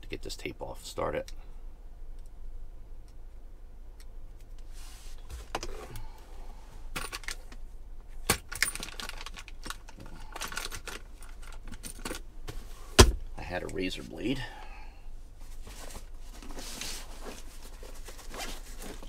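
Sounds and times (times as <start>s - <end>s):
small hard items clinking: 8.3s - 12.2s
plastic rustling: 8.5s - 11.8s, 15.5s - 19.0s.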